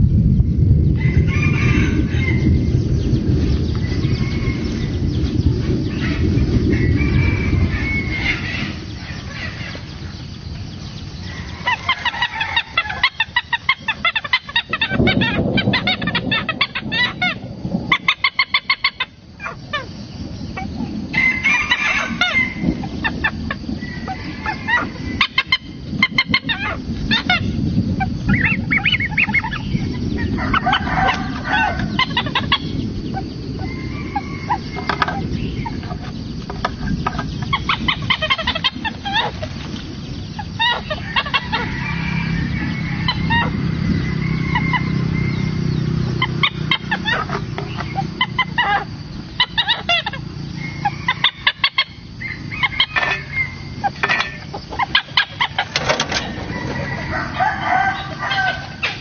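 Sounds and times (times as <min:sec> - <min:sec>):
hornbills calling: 0:11.2 - 0:20.0, 0:21.4 - 0:59.0.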